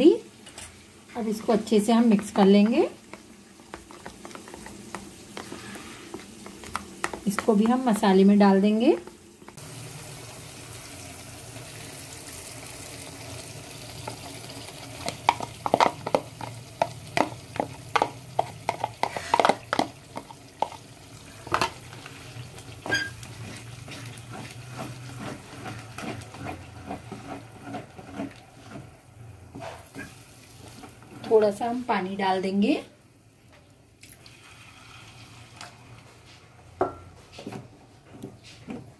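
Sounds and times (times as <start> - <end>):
masala sizzling in a pan: 0.0 - 37.2
wooden spatula scraping and knocking: 1.4 - 8.3, 15.0 - 20.8, 22.7 - 31.6.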